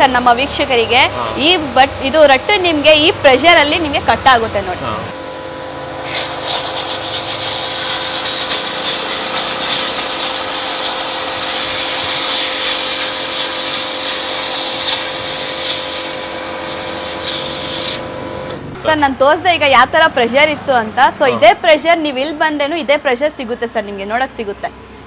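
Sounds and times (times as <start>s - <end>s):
pressure washer motor hum: 0.0s - 18.8s
water jet hissing on cardboard: 6.0s - 18.2s.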